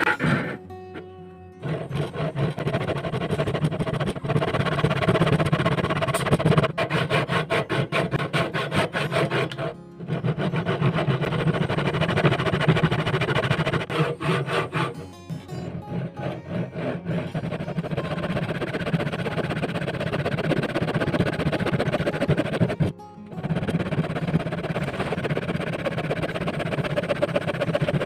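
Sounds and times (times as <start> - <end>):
hand saw cutting wood: 0.0 - 28.0
background music: 0.1 - 4.8, 5.7 - 26.6.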